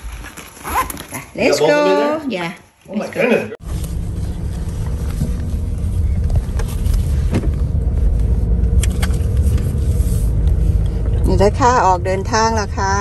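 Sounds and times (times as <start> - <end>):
car interior low rumble: 3.6 - 13.0.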